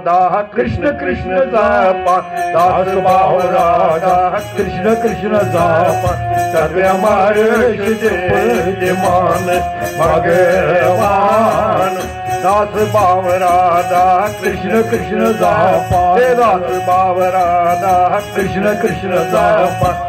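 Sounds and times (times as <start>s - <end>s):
man singing with vibrato: 0.0s - 20.0s
instrumental accompaniment: 0.4s - 20.0s
steady low drone: 0.8s - 20.0s.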